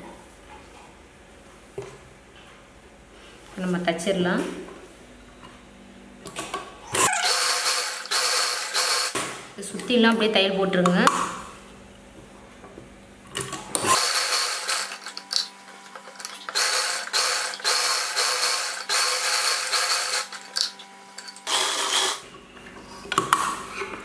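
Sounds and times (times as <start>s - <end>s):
sewing machine stitching: 7.0s - 9.2s, 13.8s - 22.2s.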